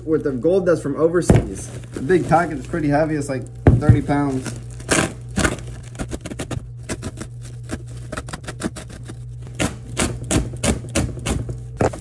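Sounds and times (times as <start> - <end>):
plastic sack tearing: 1.2 - 10.8.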